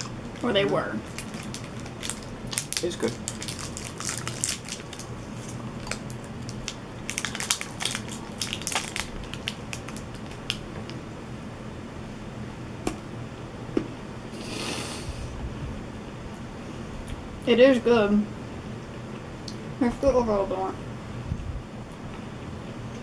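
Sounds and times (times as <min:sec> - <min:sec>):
plastic wrappers crinkling: 0:00.0 - 0:10.7
short breathy hiss: 0:14.3 - 0:15.3.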